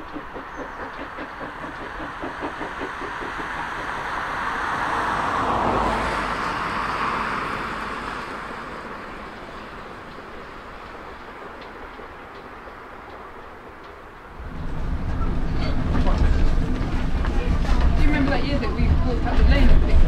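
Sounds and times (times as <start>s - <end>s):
distant steam locomotive exhaust beats: 0.0s - 5.4s
rushing noise: 0.0s - 20.0s.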